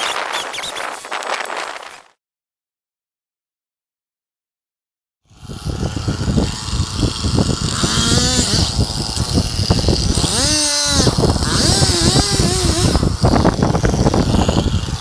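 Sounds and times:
chainsaw cutting wood: 5.3 - 15.0.

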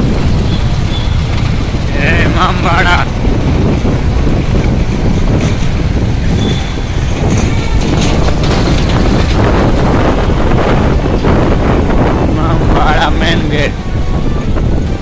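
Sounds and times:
road traffic: 0.0 - 15.0
wind rumble on microphone: 0.0 - 15.0.

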